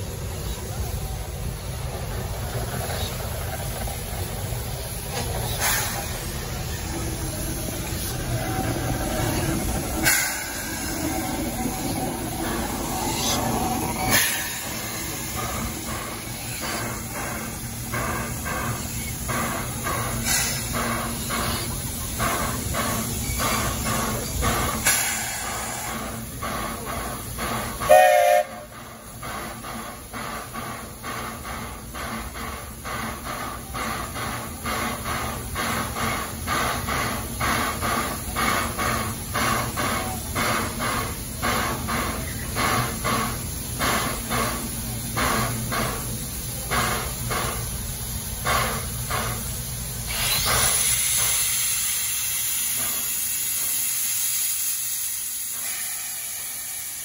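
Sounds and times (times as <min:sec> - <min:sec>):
steam hissing from cylinder cocks: 0:00.0 - 0:57.0
steam locomotive chuffing: 0:00.0 - 0:57.0
steam whistle toot: 0:27.8 - 0:28.7.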